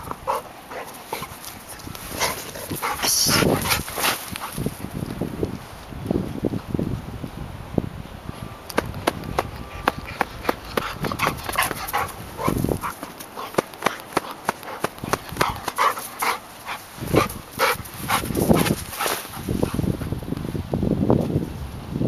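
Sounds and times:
dog panting: 0:00.0 - 0:04.8, 0:09.6 - 0:19.9.

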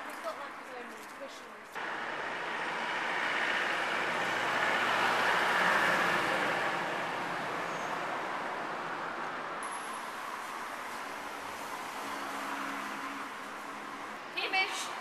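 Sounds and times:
vehicle passing: 0:01.8 - 0:09.6.

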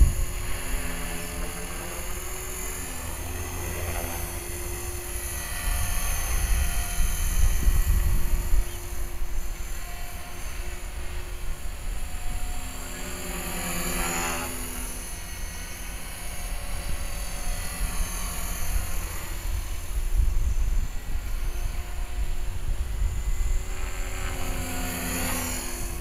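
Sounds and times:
wind rumble on microphone: 0:00.0 - 0:00.9, 0:05.2 - 0:12.5, 0:16.7 - 0:24.6
rc helicopter motor whine: 0:00.0 - 0:26.0.

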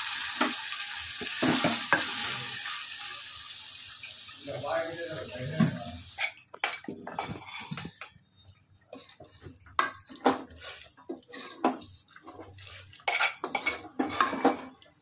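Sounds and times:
wooden spatula scraping pot: 0:05.6 - 0:08.0, 0:08.9 - 0:14.8.

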